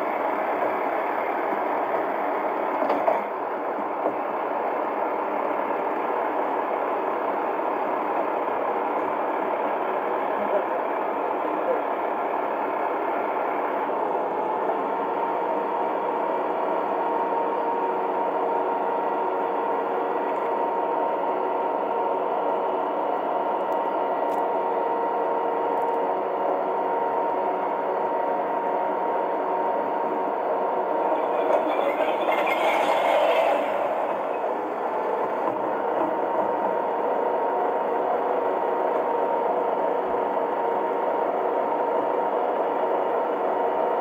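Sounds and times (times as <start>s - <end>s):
lorry engine running: 0.0s - 44.0s
hydraulic bin lift whine: 10.9s - 42.1s.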